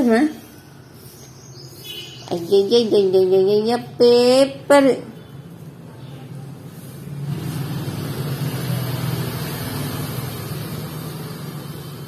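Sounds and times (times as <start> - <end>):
vehicle engine running: 5.5 - 12.0.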